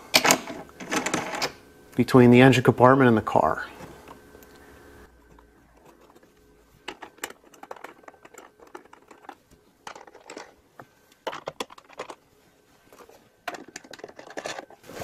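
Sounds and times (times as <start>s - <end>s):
small hardware clicking and rustling: 6.8s - 12.2s, 12.9s - 14.8s.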